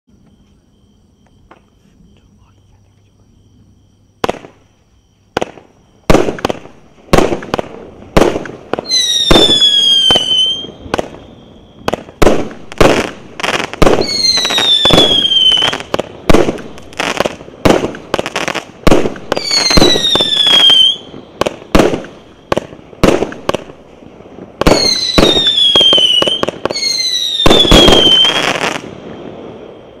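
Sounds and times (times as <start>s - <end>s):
fireworks launch pops and bursts: 0.1s - 2.4s, 3.6s - 30.0s
falling firework whistle: 8.2s - 23.7s, 24.6s - 30.0s.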